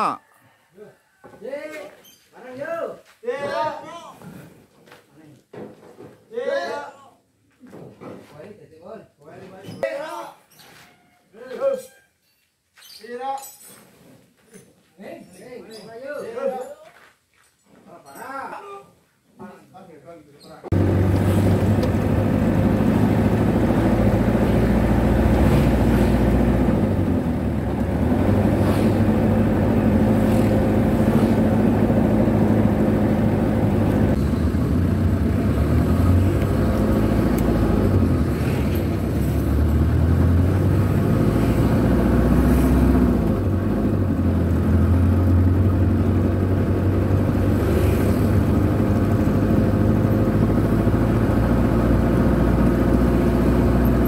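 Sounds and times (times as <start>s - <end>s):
road and traffic noise: 20.7s - 54.0s
vehicle engine running: 20.7s - 54.0s.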